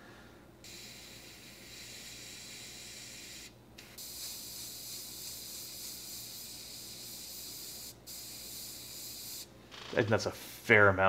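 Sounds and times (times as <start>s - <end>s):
airbrush spraying hiss: 0.6s - 9.5s.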